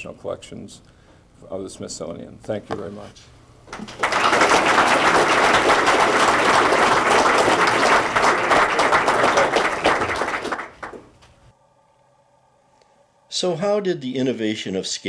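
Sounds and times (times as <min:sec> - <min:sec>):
audience applauding: 0:03.7 - 0:11.2.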